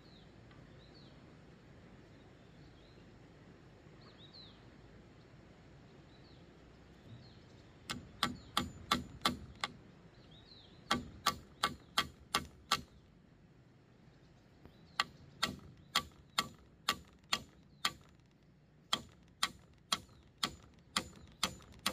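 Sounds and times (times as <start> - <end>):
tool strikes on bamboo: 7.9 - 9.8, 10.9 - 13.0, 14.9 - 21.9.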